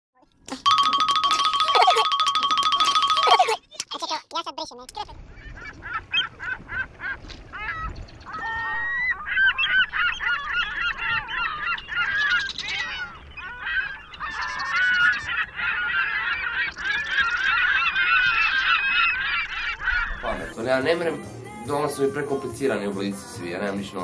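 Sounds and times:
honking squealing animal calls: 0:05.4 - 0:20.6.

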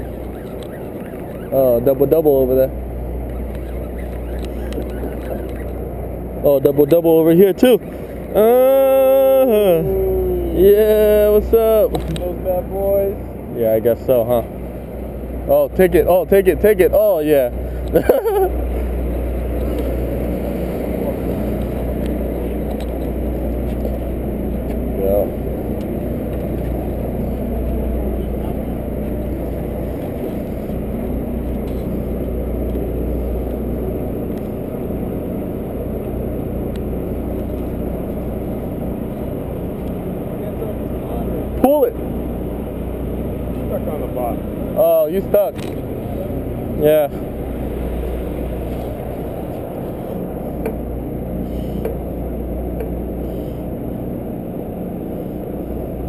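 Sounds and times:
faint clicks: 0:00.0 - 0:01.4, 0:03.2 - 0:05.8
boat engine rumbling: 0:00.0 - 0:56.0.

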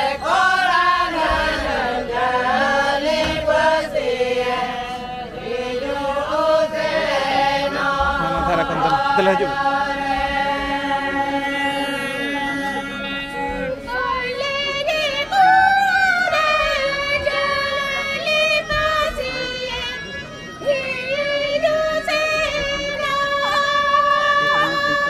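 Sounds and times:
voices singing chant-like: 0:00.0 - 0:25.0.

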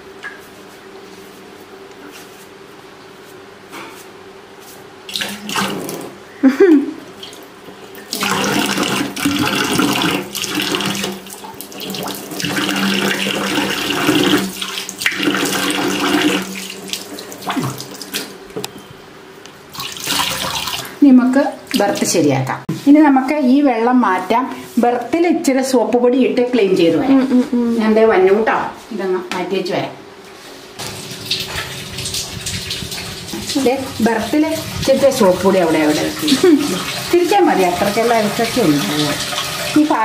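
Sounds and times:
water pouring into pot: 0:30.8 - 0:39.9.

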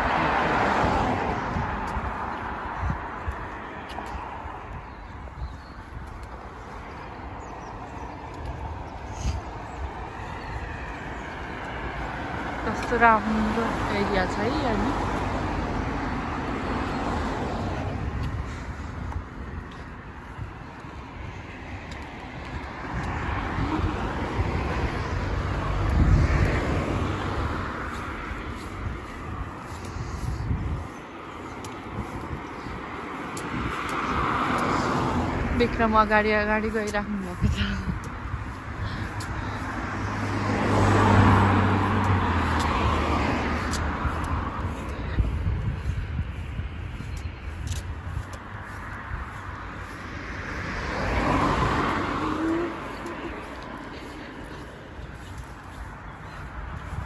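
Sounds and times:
vehicle passing by: 0:00.0 - 0:57.0
car driving past: 0:38.5 - 0:44.8, 0:49.8 - 0:55.8.

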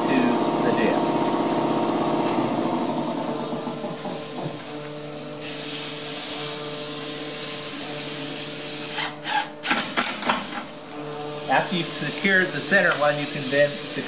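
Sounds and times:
screw gun driving screw: 0:08.9 - 0:10.6.

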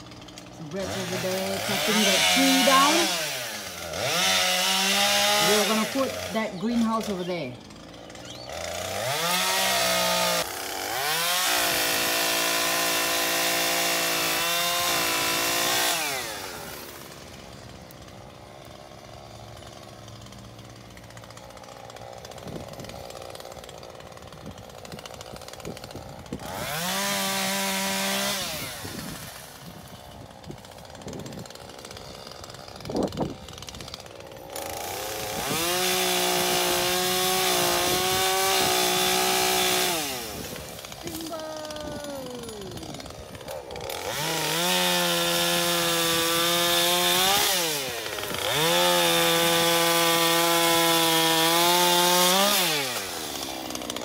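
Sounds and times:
chainsaw cutting wood: 0:00.0 - 0:54.0.

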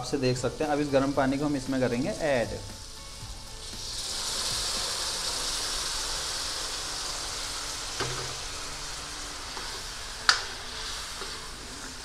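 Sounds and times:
steam hissing: 0:00.0 - 0:12.0
water poured into hot oil: 0:03.6 - 0:12.0.

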